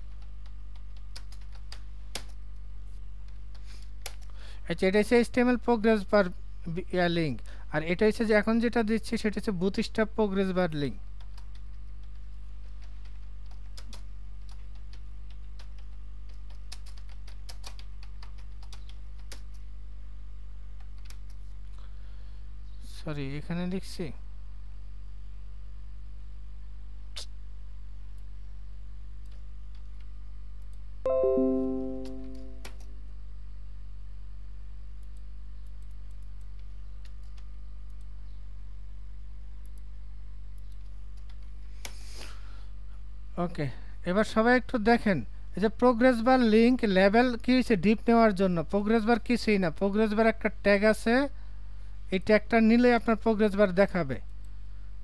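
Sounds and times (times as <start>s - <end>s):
keyboard keystrokes: 0.1s - 2.3s
keyboard keys clicking: 0.2s - 2.3s, 12.8s - 19.6s.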